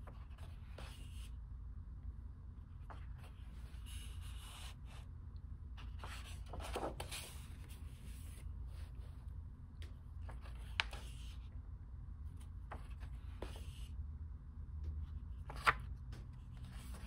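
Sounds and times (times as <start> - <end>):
book pages turning: 5.8 - 9.2, 9.8 - 11.4, 12.4 - 13.9, 15.1 - 17.0.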